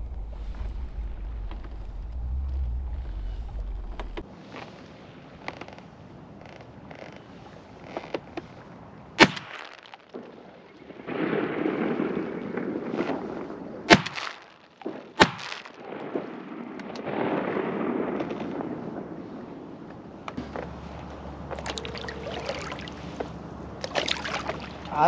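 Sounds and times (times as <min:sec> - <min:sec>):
shotgun shots: 0:09.2 - 0:09.8, 0:13.9 - 0:18.7.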